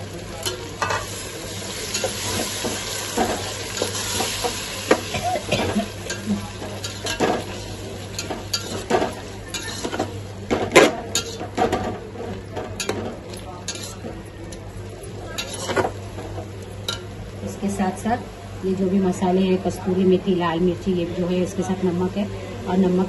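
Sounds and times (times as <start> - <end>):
paste sizzling in oil: 0.0 - 10.2
metal spoon scraping a pot: 8.2 - 10.1, 11.1 - 11.5, 13.7 - 14.1, 15.4 - 15.9.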